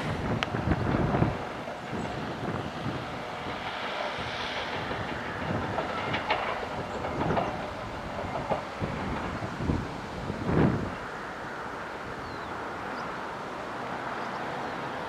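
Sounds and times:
diesel locomotive engine rumble: 0.0s - 15.0s
wheel clicks over rail joints: 4.6s - 9.7s.

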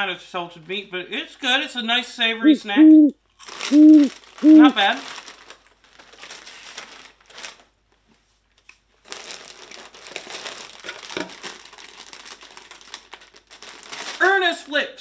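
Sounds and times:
plastic snack bags crinkling: 3.3s - 14.8s
foil bag rustling: 3.4s - 14.7s.

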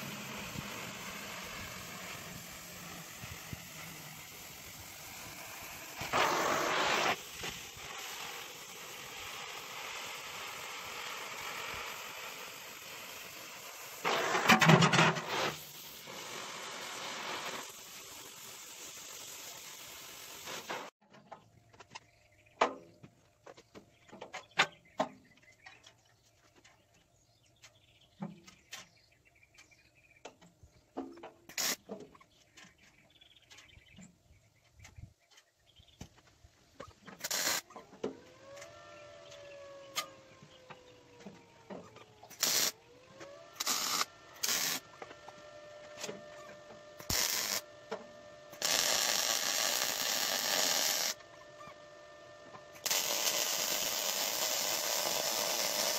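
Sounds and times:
loud torch rushes: 0.0s - 12.0s
cutting torch hissing: 0.0s - 21.0s, 37.2s - 37.8s, 42.0s - 45.0s, 46.1s - 47.8s, 48.5s - 51.4s, 52.7s - 55.9s.

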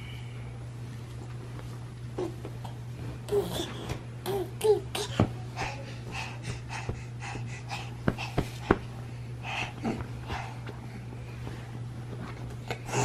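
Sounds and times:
baby breathing quickly: 5.5s - 10.6s.

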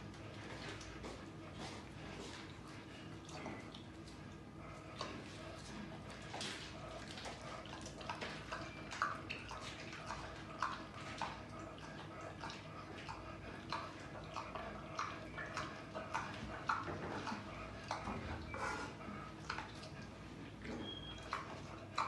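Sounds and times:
pig chewing wetly: 0.0s - 22.0s.

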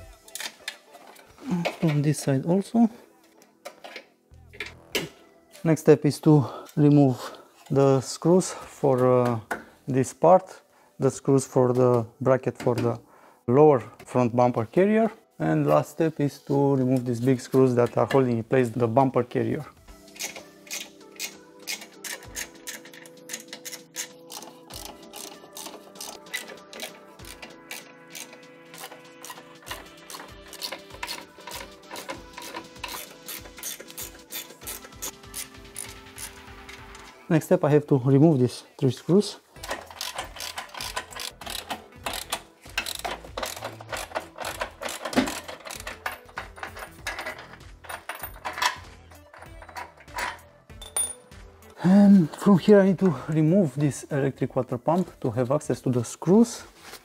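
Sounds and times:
background music: 0.0s - 57.0s
ratchet wrench clicking: 20.2s - 36.4s, 39.6s - 51.2s.

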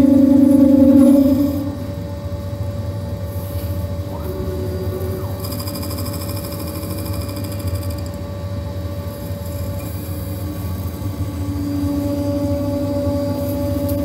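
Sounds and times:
higher buzzing: 0.0s - 2.2s
milling machine hum and whine: 0.0s - 14.0s.

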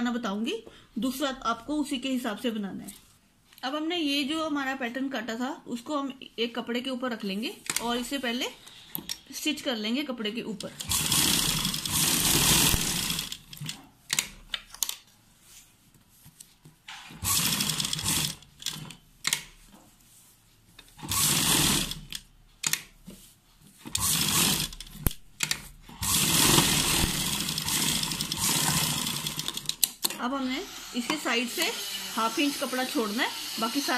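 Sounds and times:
sewing machine stitching: 10.7s - 14.2s, 17.1s - 19.0s, 21.0s - 22.2s, 23.9s - 30.0s
fabric handling: 13.1s - 16.9s.

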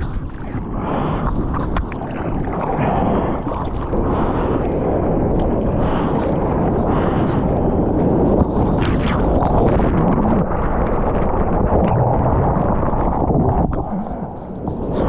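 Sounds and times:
hand strokes through water: 0.0s - 4.7s
sea water splashing: 0.0s - 15.0s
wind on microphone: 0.0s - 15.0s.

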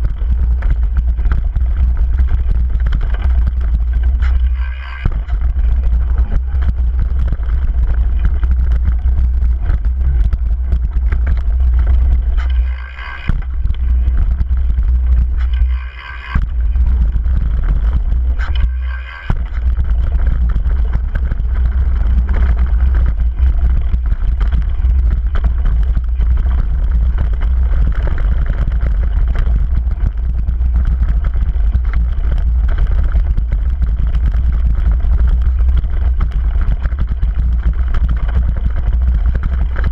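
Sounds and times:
wind buffeting microphone: 0.0s - 12.7s, 13.3s - 39.9s
bike rattling over gravel trail: 0.0s - 39.9s.

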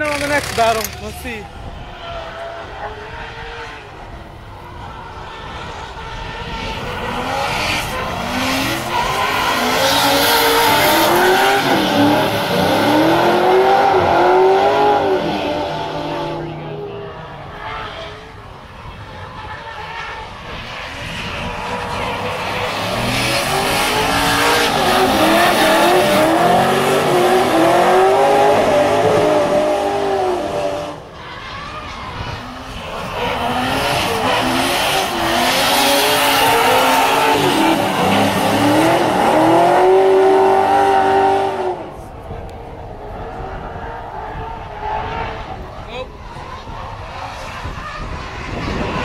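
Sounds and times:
tyres screeching: 0.0s - 2.2s
car engines revving: 0.0s - 49.0s.

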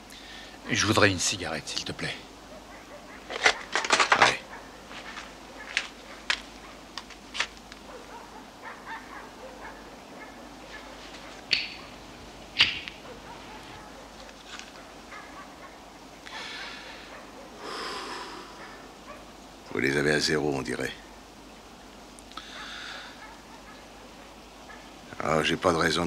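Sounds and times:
faint handling noises: 2.9s - 8.4s, 10.3s - 15.7s
small sharp clicks: 11.5s - 11.8s
short breathy hiss: 22.3s - 23.2s.

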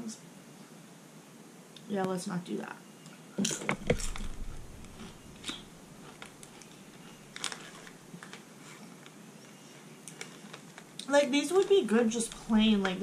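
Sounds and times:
corn chips crunching: 3.9s - 9.2s.

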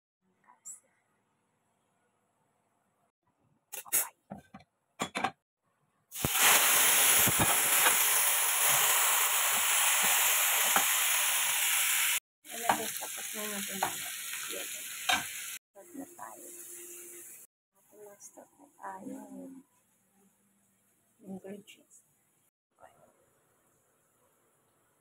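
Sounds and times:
chicken sizzling in hot oil: 6.1s - 17.5s.

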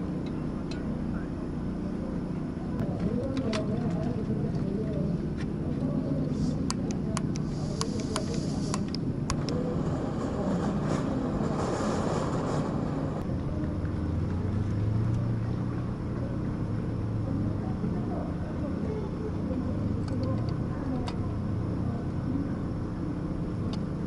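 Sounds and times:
low outdoor rumble: 0.0s - 24.0s
short hiss: 7.4s - 8.9s.

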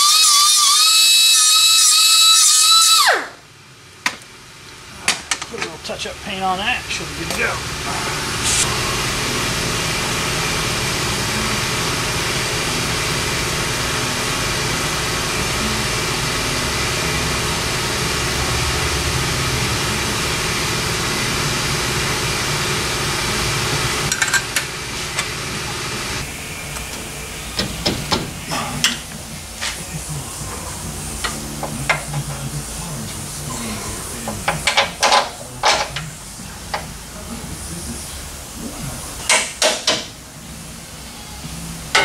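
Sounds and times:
pneumatic air hammer on metal: 34.3s - 35.9s, 39.2s - 40.2s.

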